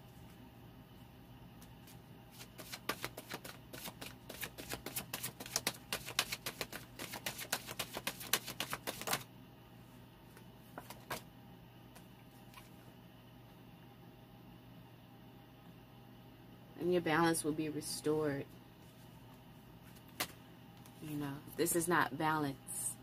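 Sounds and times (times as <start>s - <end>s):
cards being shuffled: 1.7s - 9.2s, 10.8s - 11.2s, 19.9s - 20.4s.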